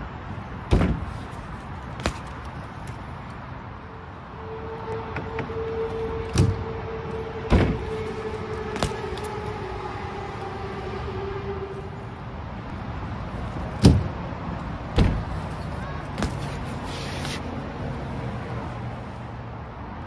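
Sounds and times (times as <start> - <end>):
bike rolling on concrete: 0.0 - 4.2, 4.8 - 20.0
bike landing impact: 0.6 - 3.0, 8.7 - 9.3, 14.9 - 17.4.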